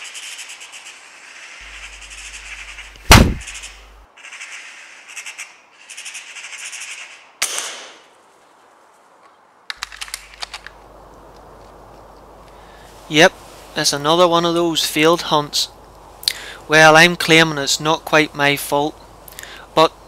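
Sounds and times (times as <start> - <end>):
magpie chattering: 1.6 - 4.5
gunshot bang: 3.0 - 3.8
sharp clicks: 9.7 - 11.5.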